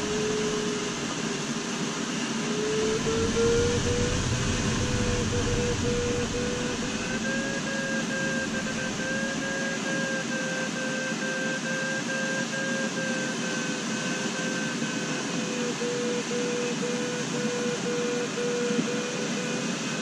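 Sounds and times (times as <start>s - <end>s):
air rushing past canopy: 0.0s - 9.7s.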